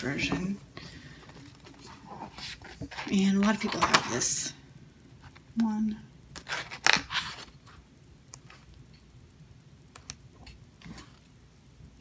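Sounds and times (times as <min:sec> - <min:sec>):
paper pages rustling: 0:01.1 - 0:04.3, 0:06.4 - 0:07.8.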